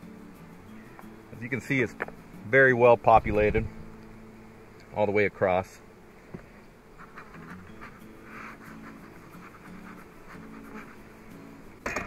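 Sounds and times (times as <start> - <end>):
bees buzzing: 0.0 - 12.0
faint scratches: 6.2 - 11.2.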